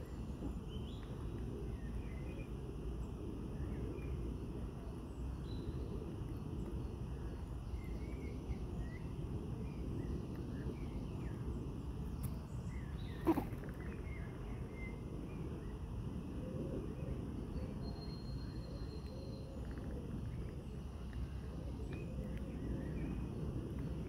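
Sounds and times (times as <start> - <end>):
steady low rumble: 0.0 - 24.0
faint bird chirps: 12.2 - 24.0.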